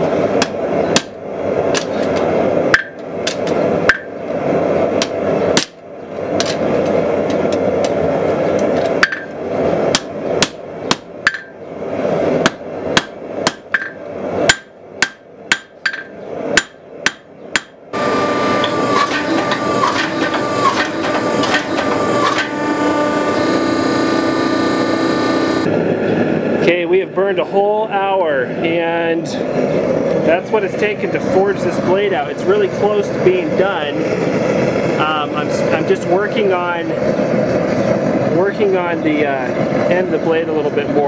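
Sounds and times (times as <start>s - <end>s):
hydraulic forging press humming: 0.0s - 25.8s
hammer striking blade on anvil: 12.4s - 17.8s
steady rushing noise: 21.2s - 41.0s.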